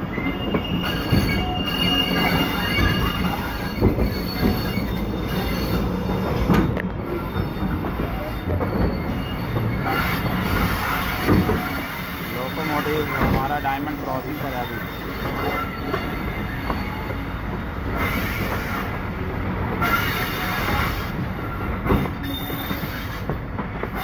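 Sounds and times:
train wheels rumbling: 0:00.0 - 0:24.0
thin high wheel squeal: 0:00.2 - 0:06.3, 0:07.2 - 0:17.2
wheels clacking over rail joints: 0:00.5 - 0:12.0.

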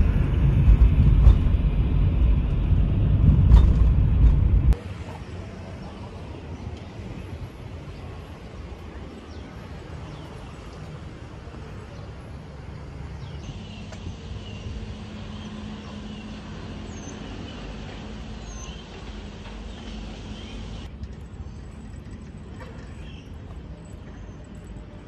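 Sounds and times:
distant road traffic: 0:00.0 - 0:25.0.

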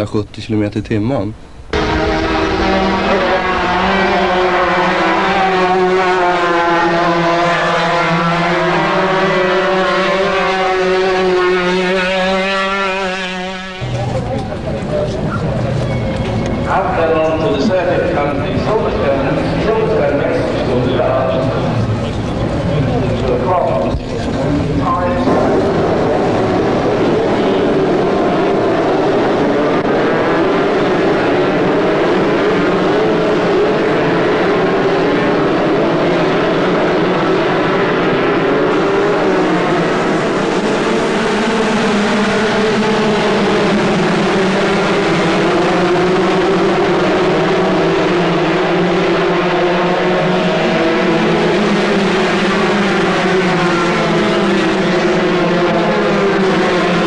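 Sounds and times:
many kart engines at high revs: 0:01.7 - 0:57.0.

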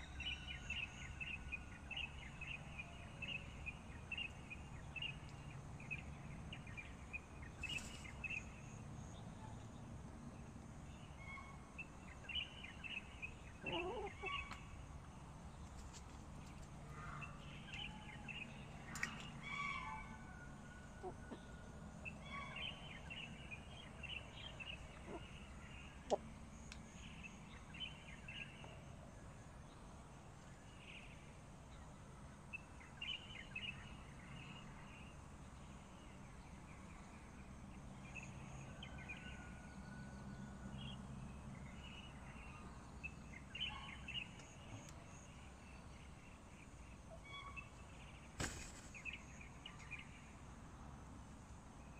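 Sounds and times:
faint bird chirps: 0:41.7 - 0:48.3.

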